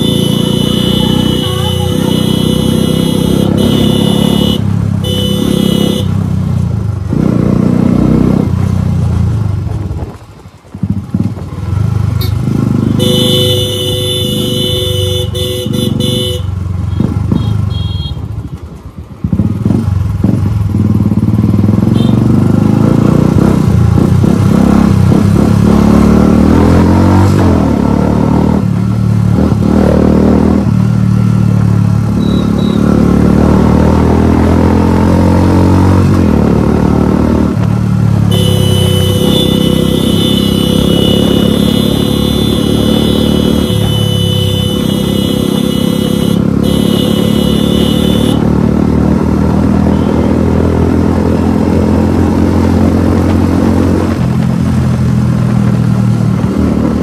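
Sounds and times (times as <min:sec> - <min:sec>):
vehicle horn: 0:00.0 - 0:06.2, 0:12.2 - 0:18.3, 0:21.8 - 0:22.2, 0:32.2 - 0:32.9, 0:38.3 - 0:48.5, 0:49.8 - 0:50.4
motorcycle engine accelerating: 0:00.0 - 0:57.0.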